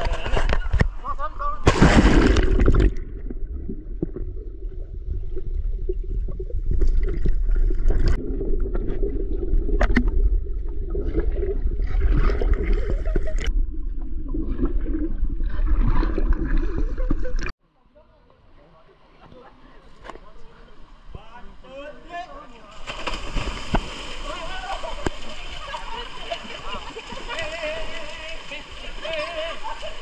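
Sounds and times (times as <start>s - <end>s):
bubbling and gurgling: 1.8s - 17.5s
muffled underwater rumble: 2.8s - 17.5s.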